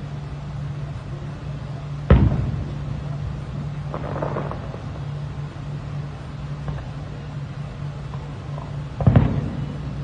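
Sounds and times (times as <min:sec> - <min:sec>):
steady low hum: 0:00.0 - 0:10.0
crackling firework pops: 0:02.0 - 0:05.2, 0:06.6 - 0:07.0, 0:08.0 - 0:10.0
firework shell boom: 0:02.1 - 0:02.9, 0:09.0 - 0:09.7.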